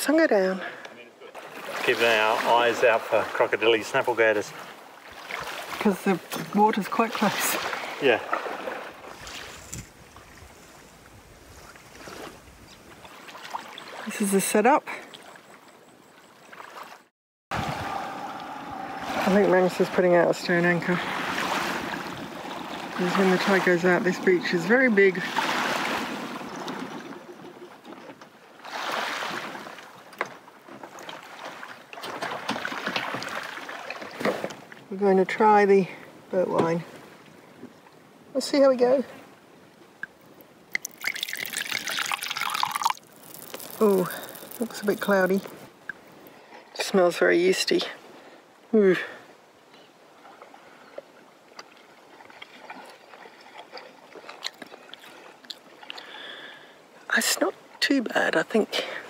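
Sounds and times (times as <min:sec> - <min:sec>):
small waves washing onto shore: 0:01.3 - 0:14.4, 0:16.5 - 0:48.6.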